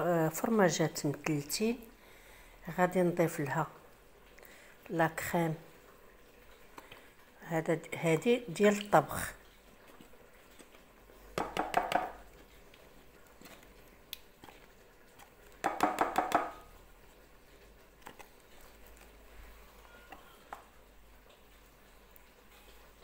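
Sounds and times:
carton tapping and crinkling: 11.4s - 12.2s, 15.6s - 16.6s.

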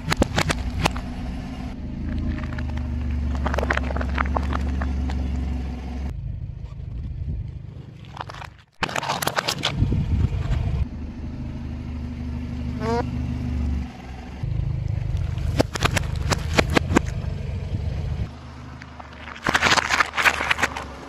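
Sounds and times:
plastic cups cracking under tyre: 0.0s - 1.1s, 2.0s - 5.5s, 8.0s - 9.8s, 15.2s - 17.2s, 18.7s - 21.0s
car engine humming: 0.0s - 8.0s, 9.6s - 21.0s.

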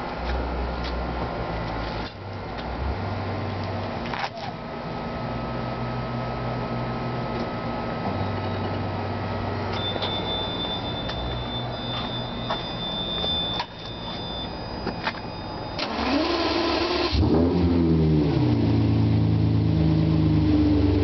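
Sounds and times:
car engine idling: 0.0s - 17.2s
steady high beep: 9.7s - 15.8s.

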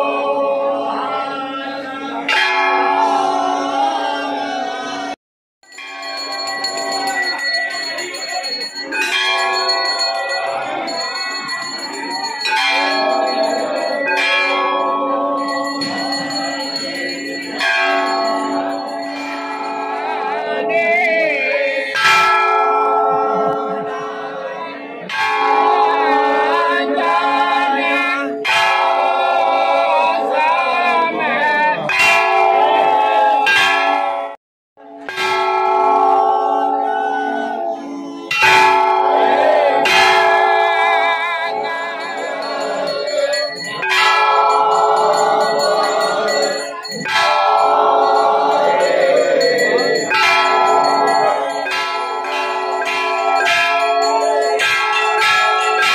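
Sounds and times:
temple bells ringing: 2.2s - 3.7s, 5.7s - 20.8s, 22.0s - 24.1s, 31.8s - 55.9s.

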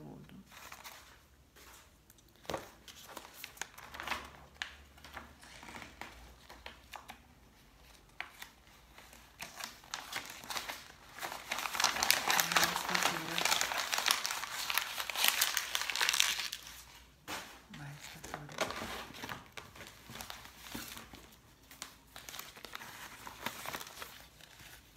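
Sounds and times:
paper crumpling: 0.5s - 24.9s
paper rustling and tapping: 1.6s - 7.2s.

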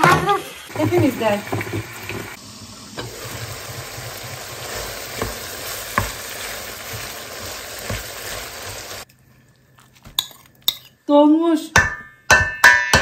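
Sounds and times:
chicken sizzling in oil: 0.0s - 9.1s
wooden spatula knocking pan: 5.1s - 7.1s.

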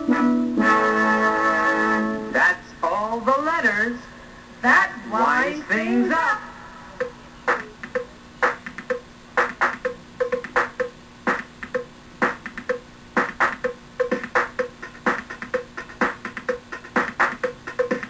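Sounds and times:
drum machine beat: 7.0s - 18.0s.

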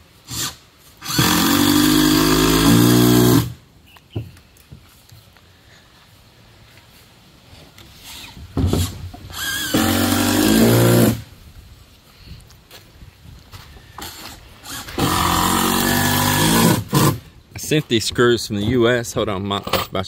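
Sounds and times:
power drill driving screws into wood: 0.2s - 3.6s, 8.0s - 11.3s, 14.0s - 17.2s.

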